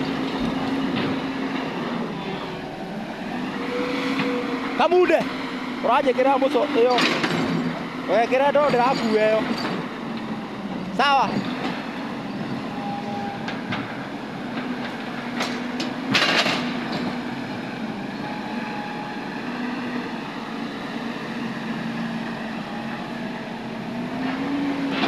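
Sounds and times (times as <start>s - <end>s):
excavator diesel engine running: 0.0s - 25.0s
loud clatter: 6.9s - 7.8s, 15.4s - 17.2s.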